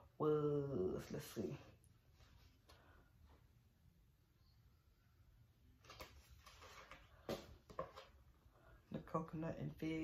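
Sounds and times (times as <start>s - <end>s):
faint soft rustles: 1.2s - 3.6s.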